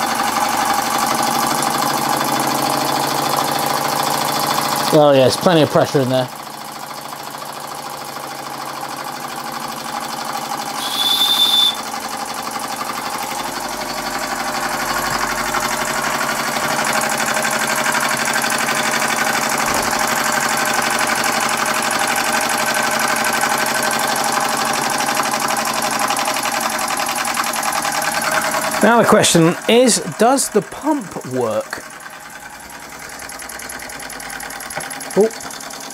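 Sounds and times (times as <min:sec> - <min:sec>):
steam engine chuffing: 0:00.0 - 0:35.9
steam valve hissing burst: 0:10.7 - 0:11.9.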